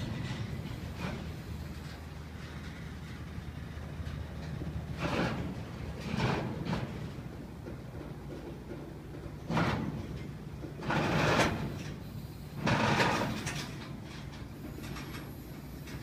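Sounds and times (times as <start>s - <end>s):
wheels scraping: 0.0s - 7.4s, 9.4s - 16.0s
train cars rumbling over track: 0.0s - 16.0s.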